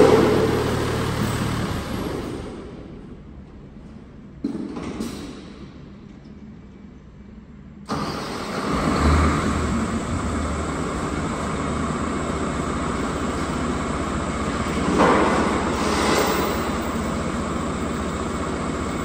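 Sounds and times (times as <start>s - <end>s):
truck engine running: 0.0s - 3.0s, 7.9s - 19.0s.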